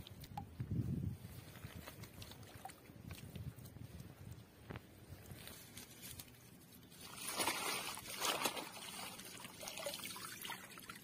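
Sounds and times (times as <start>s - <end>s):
hands splashing in muddy water: 7.0s - 10.8s.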